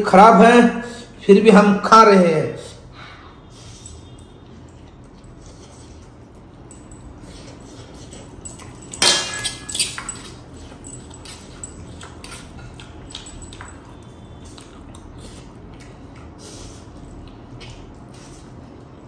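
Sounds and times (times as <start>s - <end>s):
noodles slurped and chewed: 11.9s - 18.9s.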